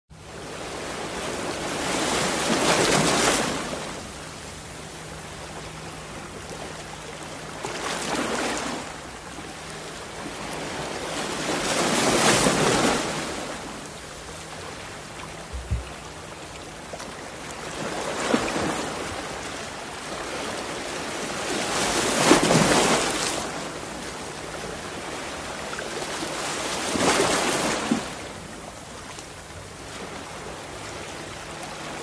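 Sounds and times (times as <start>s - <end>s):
wind and water noise: 0.1s - 32.0s.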